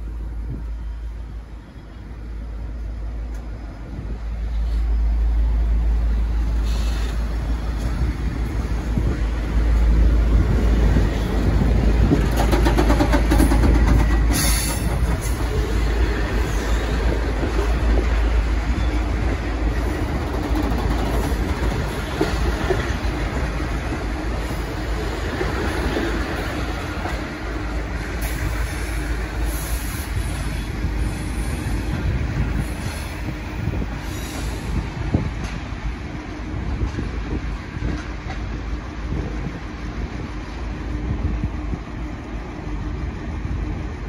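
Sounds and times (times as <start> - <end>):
train wheels rumbling: 0.0 - 44.0
wheels clicking over rail joints: 8.9 - 28.0.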